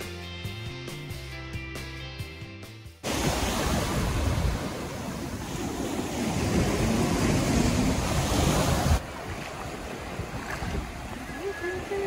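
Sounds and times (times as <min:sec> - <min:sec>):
small waves breaking on sand: 0:03.0 - 0:12.0
wind buffeting microphone: 0:03.2 - 0:12.0.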